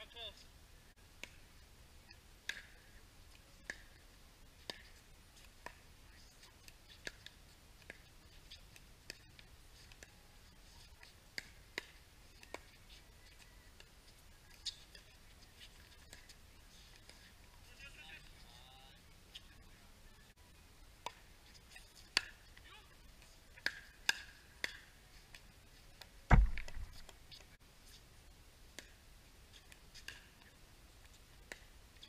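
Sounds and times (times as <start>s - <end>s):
paddles striking plastic ball: 26.3s - 27.2s.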